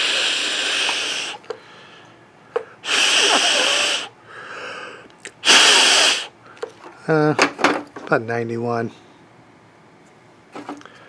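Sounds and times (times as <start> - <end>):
breaths blown into microphone: 0.0 - 1.6, 2.8 - 4.1, 5.3 - 6.3.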